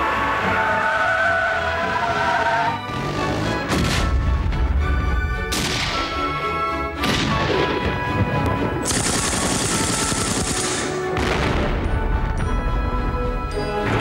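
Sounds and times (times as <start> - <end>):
music: 0.0 - 14.0
explosions: 7.0 - 12.3
rapid submachine-gun fire: 8.8 - 11.0.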